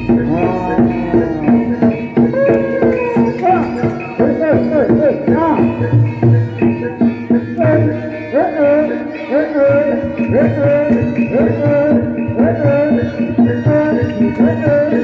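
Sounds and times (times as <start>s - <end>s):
swooping melodic phrase: 0.0s - 5.0s
hand drums: 0.0s - 8.2s.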